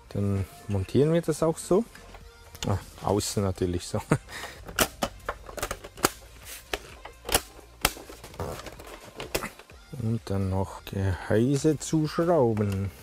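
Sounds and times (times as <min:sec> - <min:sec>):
plastic parts clicking and knocking: 0:04.4 - 0:09.8.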